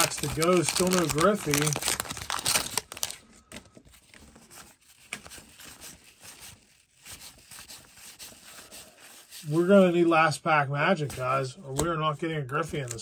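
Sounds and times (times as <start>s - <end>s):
cards rustling and clicking: 0.0s - 8.4s, 11.0s - 13.0s
wrapper crinkling: 0.0s - 9.4s.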